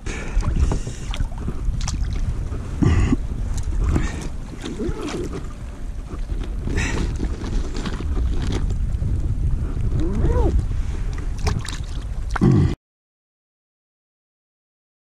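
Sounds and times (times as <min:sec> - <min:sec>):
water lapping: 0:00.0 - 0:09.2, 0:09.8 - 0:12.5
wind buffeting the microphone: 0:00.0 - 0:12.4
gear clicking and rustling: 0:03.5 - 0:10.0.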